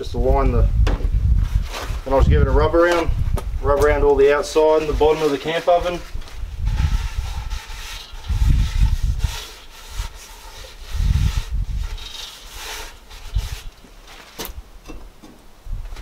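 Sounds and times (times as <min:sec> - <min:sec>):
paper towel scrubbing pot: 0:04.0 - 0:13.8.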